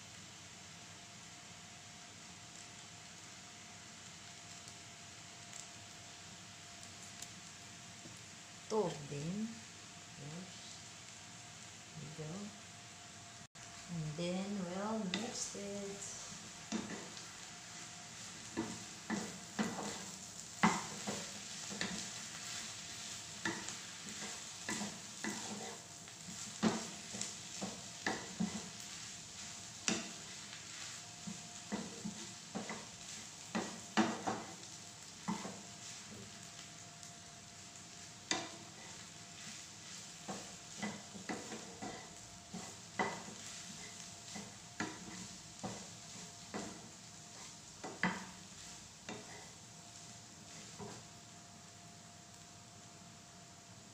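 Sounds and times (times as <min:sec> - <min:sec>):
noodles sizzling in a frying pan: 0:00.0 - 0:53.9
wooden spatula scraping a pan: 0:14.8 - 0:36.4, 0:38.0 - 0:51.1.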